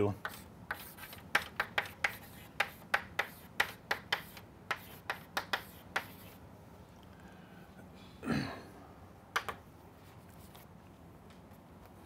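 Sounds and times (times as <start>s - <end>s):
chalk tapping on chalkboard: 0.2s - 6.4s.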